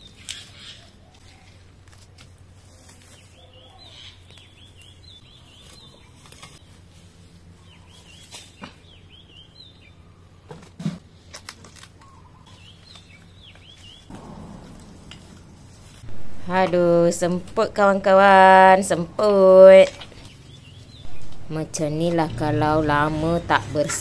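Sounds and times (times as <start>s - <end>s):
weeds pulled and rustled: 0.2s - 8.8s
bird chirping: 3.1s - 6.7s, 7.5s - 10.4s, 12.0s - 18.3s, 19.8s - 23.9s
thump: 14.1s - 16.3s.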